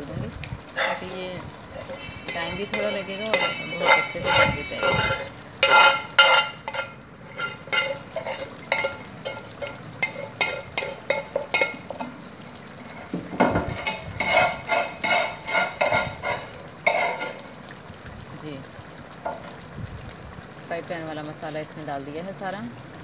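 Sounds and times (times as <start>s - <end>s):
light sizzle: 0.0s - 23.0s
spatula scraping and knocking pans: 0.7s - 17.6s.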